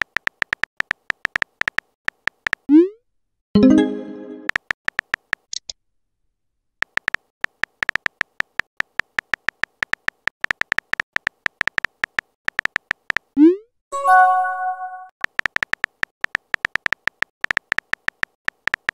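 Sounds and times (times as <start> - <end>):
phone keyboard typing clicks: 0.0 - 2.7, 4.4 - 5.5, 6.8 - 13.4, 15.2 - 18.9
chime: 14.0 - 15.1.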